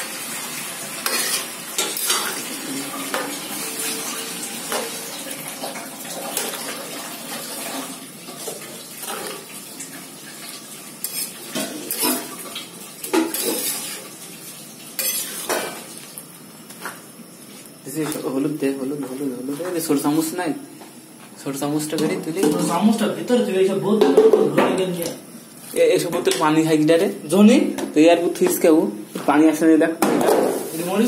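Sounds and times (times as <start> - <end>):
metal spatula scraping wok: 1.0 - 4.0, 11.0 - 12.3, 13.3 - 14.0, 15.0 - 15.5.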